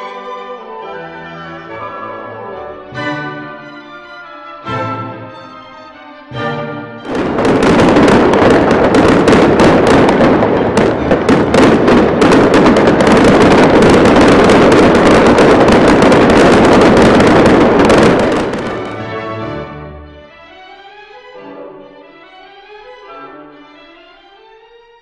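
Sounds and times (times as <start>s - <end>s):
orchestral music: 0.0s - 25.0s
fireworks crackling and banging: 7.0s - 19.2s.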